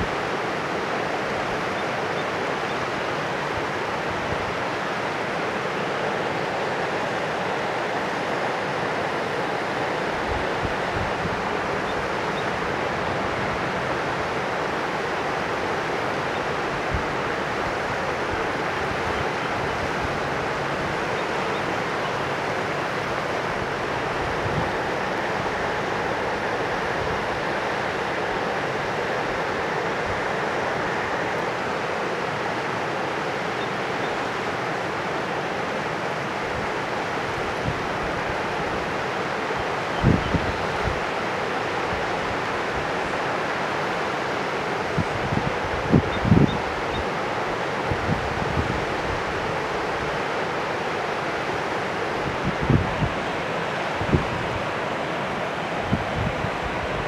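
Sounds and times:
river rushing: 0:00.0 - 0:57.0
wind buffeting microphone: 0:23.2 - 0:28.6, 0:40.0 - 0:41.1, 0:44.9 - 0:47.0, 0:52.0 - 0:57.0.

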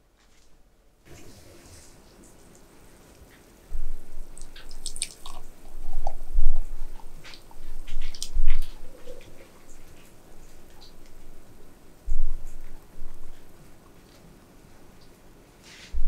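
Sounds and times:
thick liquid pouring into glass: 0:04.2 - 0:07.2.

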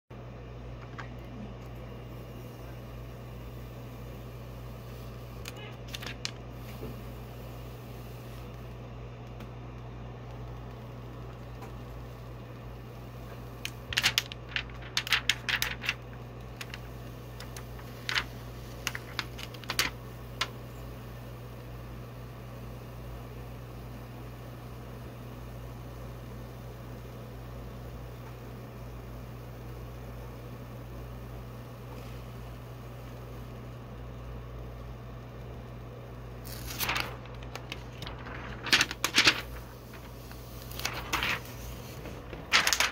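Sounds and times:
low electrical hum: 0:00.1 - 0:42.9
plastic film crackling: 0:05.5 - 0:06.4, 0:13.5 - 0:20.6, 0:36.4 - 0:42.9.

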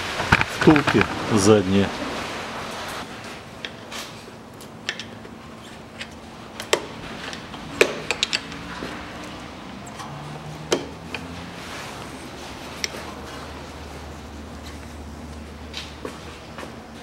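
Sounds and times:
screwdriver metal clicks and knocks: 0:07.8 - 0:08.6.

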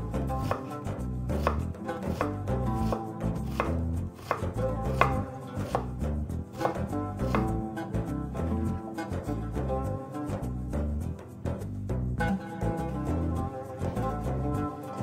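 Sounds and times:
knife chopping on wooden board: 0:00.4 - 0:00.7, 0:01.4 - 0:07.6.

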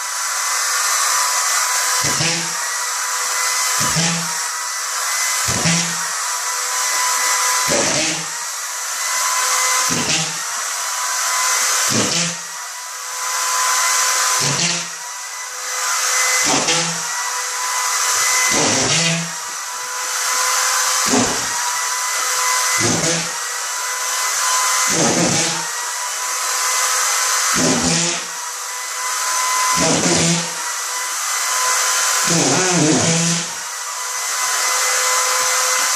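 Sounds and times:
screw gun whining: 0:00.0 - 0:35.9
screw driven into drywall: 0:03.3 - 0:04.5, 0:09.2 - 0:10.5, 0:13.3 - 0:15.0, 0:16.0 - 0:17.2, 0:18.0 - 0:21.7, 0:26.7 - 0:28.3.

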